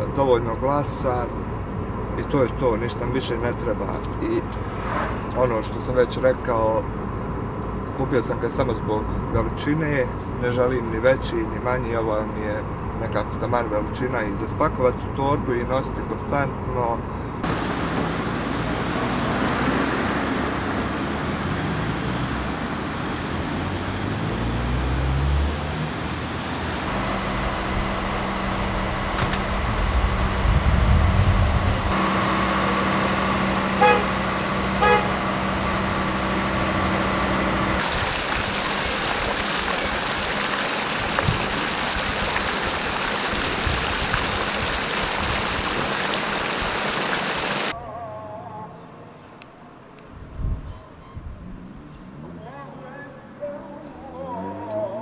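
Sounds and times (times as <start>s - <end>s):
cars driving past: 4.2s - 6.2s, 17.2s - 38.2s
heavy truck engine drone: 17.0s - 38.2s
fountain water jets splashing: 37.8s - 47.7s.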